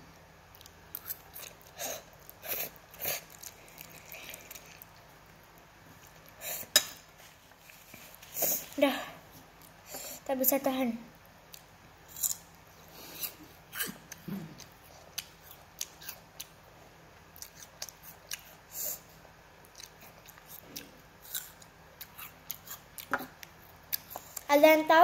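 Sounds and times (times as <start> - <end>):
crunching crisp fruit: 0.5 - 6.4, 11.5 - 16.6, 19.6 - 24.5.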